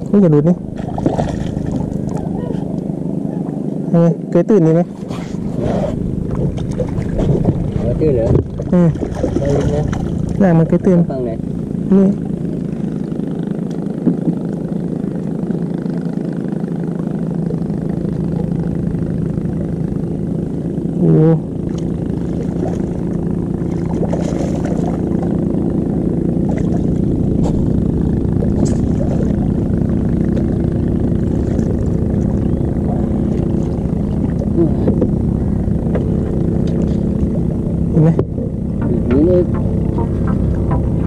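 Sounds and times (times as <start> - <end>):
small engine humming: 0.0 - 41.0
short wavering sound: 21.0 - 41.0.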